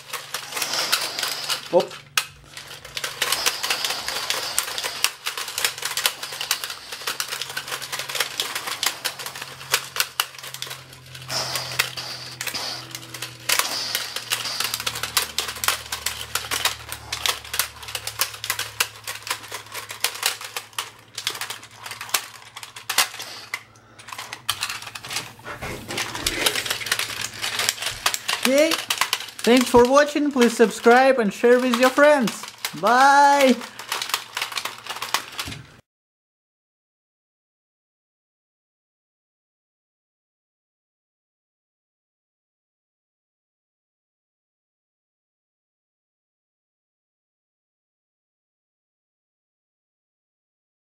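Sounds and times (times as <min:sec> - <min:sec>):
plastic toy clacking: 0:00.0 - 0:35.6.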